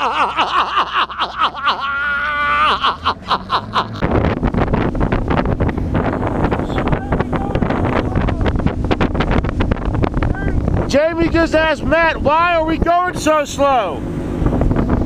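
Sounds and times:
man laughing: 0.0s - 4.2s
outboard motor running: 0.0s - 15.0s
wind buffeting microphone: 2.6s - 15.0s.

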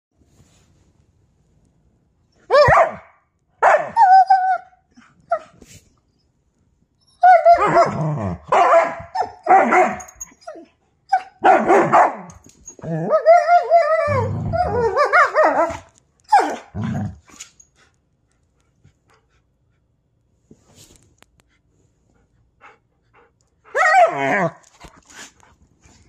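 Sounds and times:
dogs howling and yipping: 7.2s - 8.1s, 12.8s - 16.8s, 23.7s - 24.6s
dog growling low: 14.1s - 14.9s.

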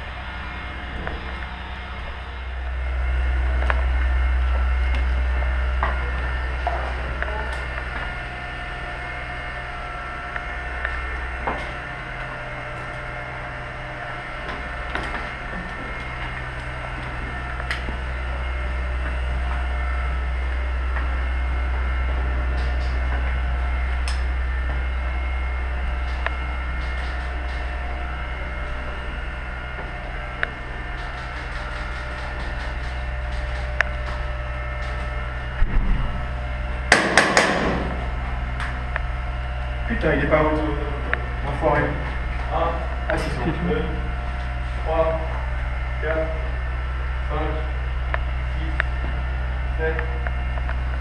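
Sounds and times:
sharp loud knocks: 36.9s - 38.0s.

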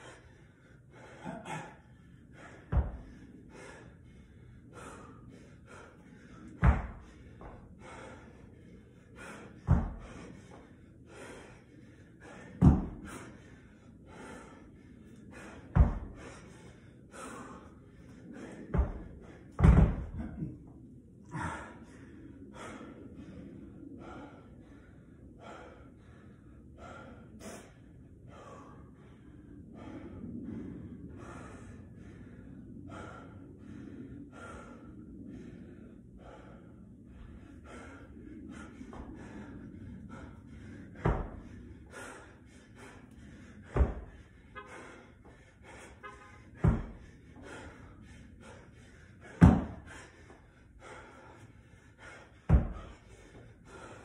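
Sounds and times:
man breathing heavily and gasping: 0.0s - 54.0s
dumbbell thudding onto rubber mat: 19.6s - 20.2s, 49.4s - 49.8s.

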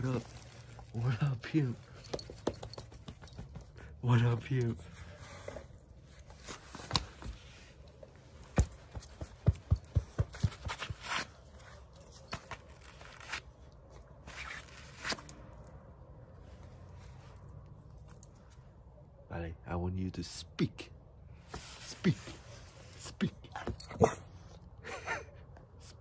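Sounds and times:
rustling of fur and clothing: 0.0s - 3.8s.

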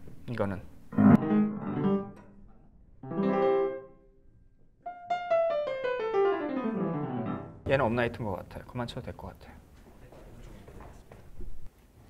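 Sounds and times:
upright piano playing: 0.9s - 4.1s, 4.8s - 8.6s.

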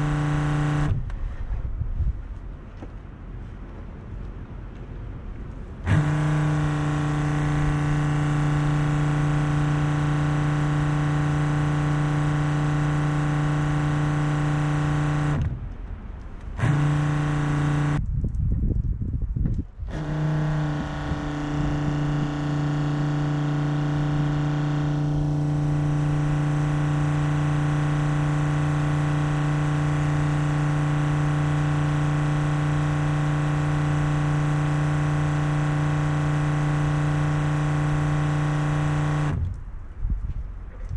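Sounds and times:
pump humming: 0.0s - 1.0s, 5.8s - 15.4s, 16.6s - 18.0s, 19.9s - 39.4s.

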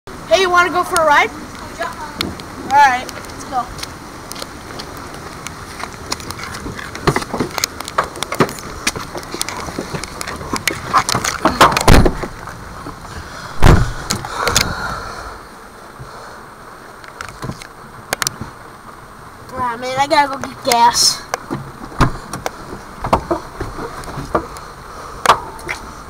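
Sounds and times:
knocks clicks and rustles: 0.9s - 14.7s, 19.5s - 24.6s, 25.2s - 25.9s
heavy thumps: 9.8s - 12.5s, 13.5s - 14.8s.

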